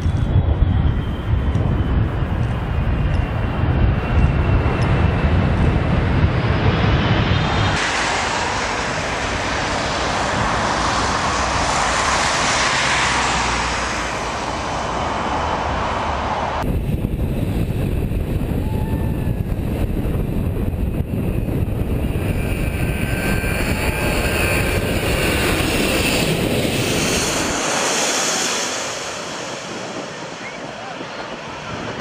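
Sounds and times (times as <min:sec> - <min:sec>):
airliner landing jet rumble: 0:00.0 - 0:32.0
hissing jet engine noise: 0:00.0 - 0:32.0.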